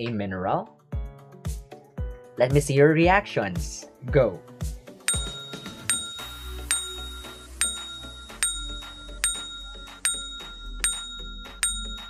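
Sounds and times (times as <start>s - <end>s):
bell-like chime: 5.1s - 12.0s
simple melody: 5.1s - 12.0s.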